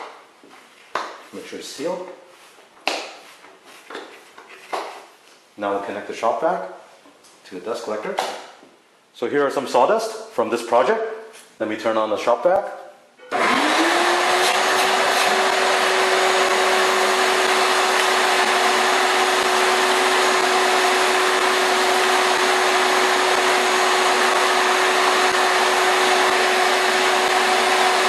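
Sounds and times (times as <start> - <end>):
shop vacuum running: 13.3 - 28.0.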